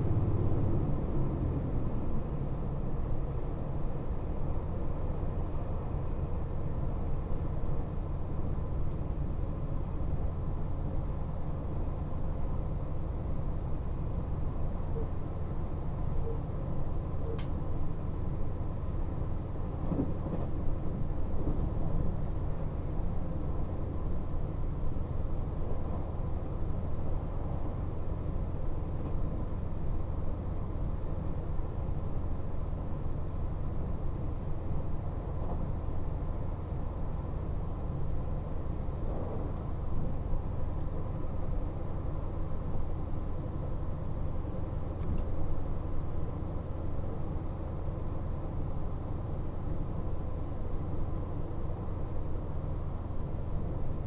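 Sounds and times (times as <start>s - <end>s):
train rumbling at speed: 0.0s - 54.0s.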